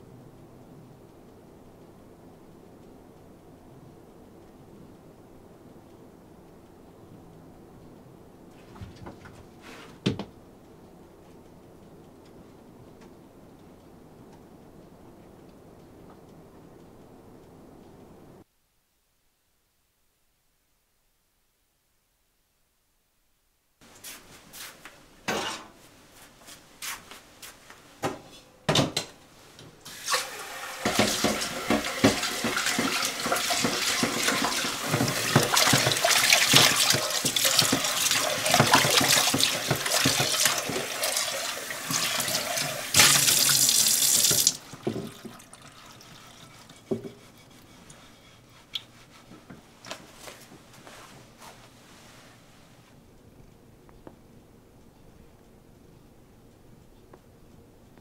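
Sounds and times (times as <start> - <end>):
bowl being scrubbed: 30.7 - 49.6
dishes knocking: 30.8 - 41.0
tap running into metal sink: 30.8 - 46.0.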